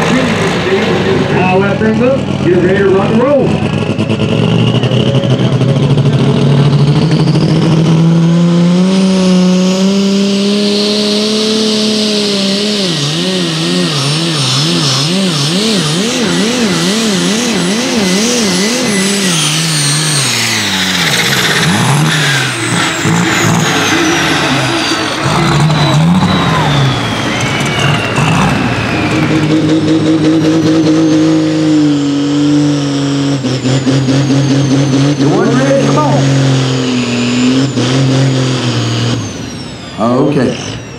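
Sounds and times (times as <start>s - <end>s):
tractor engine at full throttle: 0.0s - 40.9s
turbo whistle: 16.1s - 29.8s.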